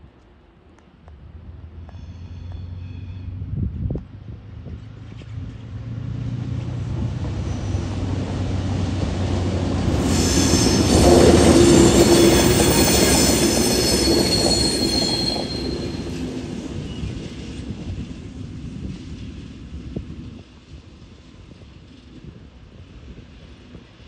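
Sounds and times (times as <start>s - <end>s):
diesel locomotive engines rumbling: 5.4s - 24.0s
steel wheels squealing on rail: 7.2s - 8.3s, 9.8s - 18.1s.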